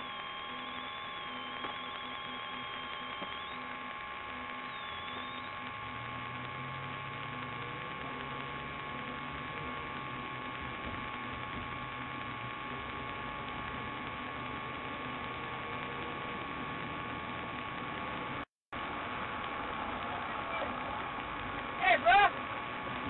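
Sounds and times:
electrical hum and hiss: 0.0s - 23.0s
whining tones: 0.0s - 23.0s.

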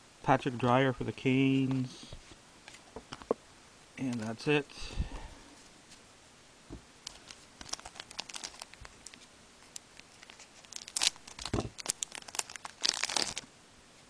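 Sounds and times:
foil wrapper crinkling: 7.0s - 13.5s
foil pack tearing open: 7.1s - 9.2s, 10.0s - 13.4s.

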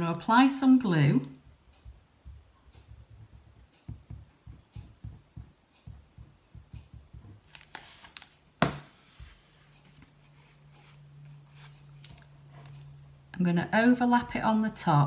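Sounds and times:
glue bottle tapping on paper: 1.8s - 7.6s
bottle knocking on wooden table: 3.1s - 7.4s
paper handling: 7.4s - 8.4s.

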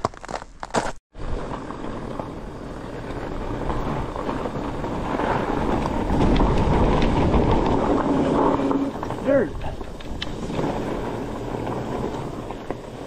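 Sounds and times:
bike rattles and ticks: 0.0s - 13.0s
bike tyres rolling on icy snow: 0.0s - 13.0s
wind on microphone: 1.2s - 13.0s.

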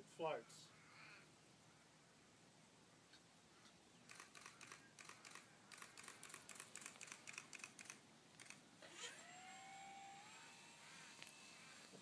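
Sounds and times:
model aircraft electric motor whine: 8.8s - 12.0s.

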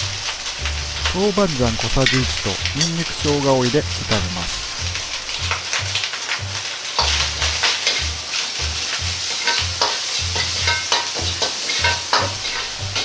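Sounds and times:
meat sizzling in a wok: 0.0s - 13.0s
metal ladle scraping a wok: 9.2s - 13.0s.

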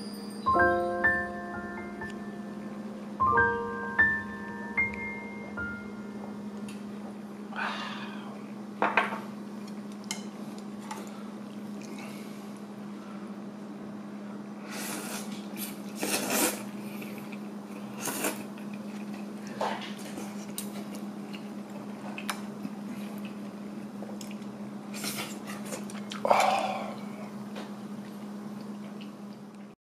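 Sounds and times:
steady low hum: 0.0s - 29.7s
slurping noodles and broth: 14.7s - 17.2s.

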